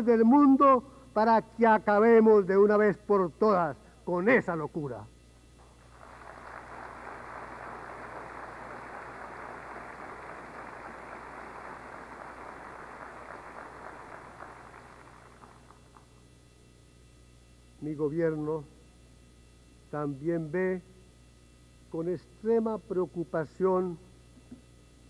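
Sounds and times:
audience applauding: 0:05.6 - 0:16.2.

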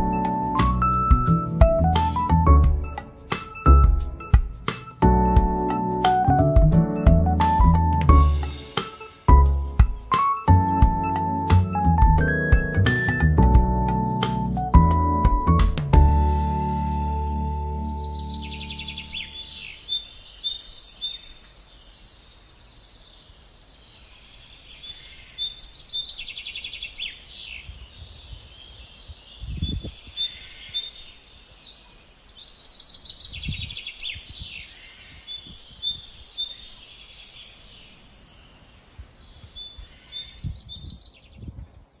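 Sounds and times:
dull low thumps: 0:00.0 - 0:03.0, 0:03.7 - 0:08.7, 0:09.3 - 0:18.2
small birds chirping and singing: 0:00.0 - 0:14.4, 0:17.0 - 0:42.0.

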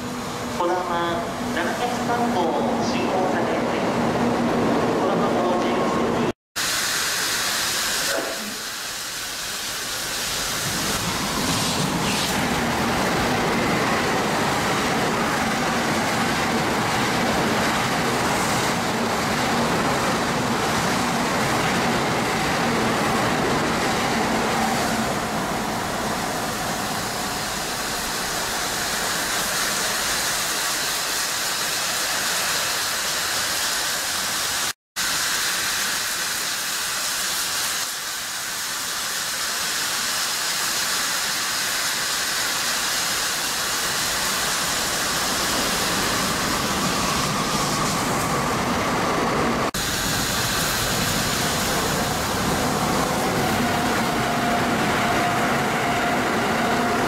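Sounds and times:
hiss of blown snow: 0:06.6 - 0:12.6, 0:27.3 - 0:48.1
train rushing past: 0:09.6 - 0:34.7, 0:41.9 - 0:57.0.

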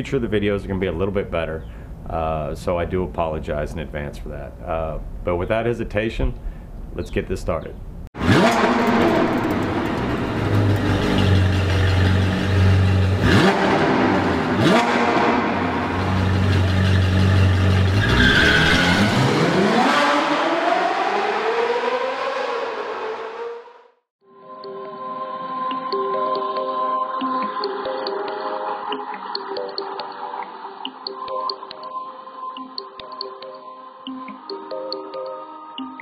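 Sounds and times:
sports car engine revving: 0:08.2 - 0:23.9
music: 0:24.2 - 0:36.0.

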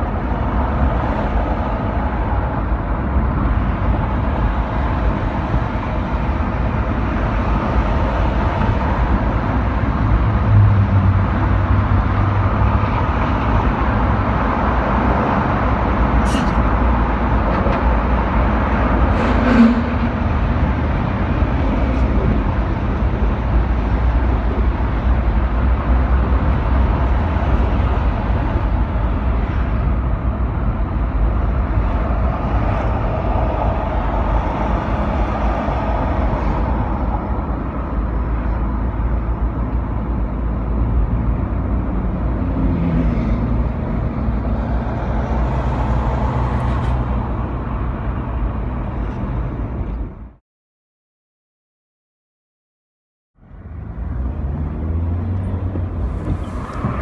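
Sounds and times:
car engine and tyre rumble: 0:00.0 - 0:50.4, 0:53.4 - 0:57.0.

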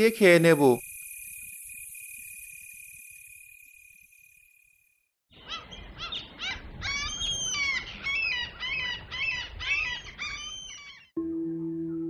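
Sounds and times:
birds chirping: 0:05.3 - 0:11.1.

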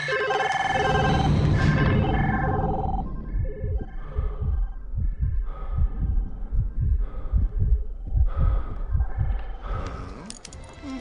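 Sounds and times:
fast low thumping beat: 0:03.2 - 0:09.4.

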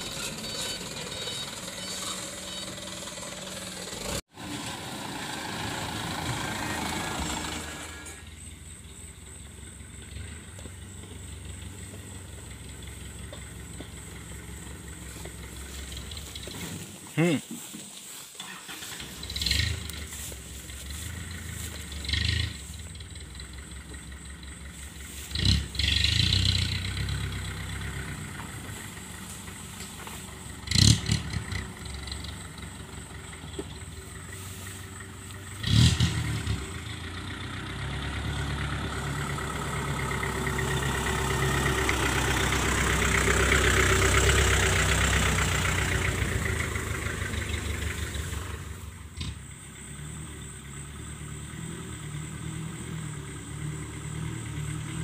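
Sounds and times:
off-road vehicle engine running: 0:00.0 - 0:55.0
short loud engine bursts: 0:18.4 - 0:20.4.

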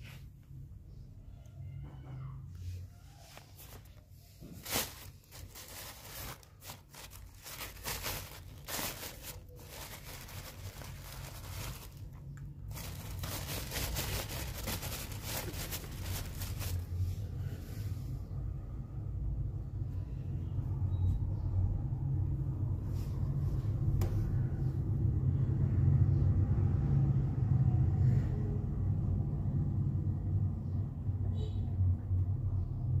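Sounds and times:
plastic bag rustling: 0:03.2 - 0:17.2.

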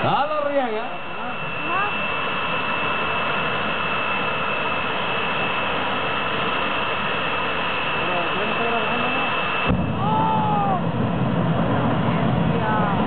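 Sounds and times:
gas turbine engine whining: 0:00.0 - 0:13.0.

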